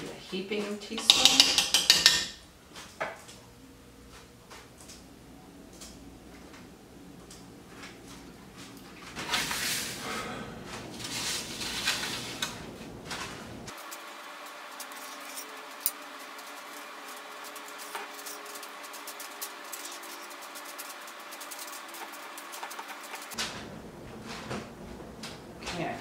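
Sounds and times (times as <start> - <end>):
metal spoons clicking and scraping: 1.0 - 2.4, 13.7 - 23.4
metal pans scraping on countertop: 9.0 - 10.0, 10.6 - 13.5, 14.7 - 23.6.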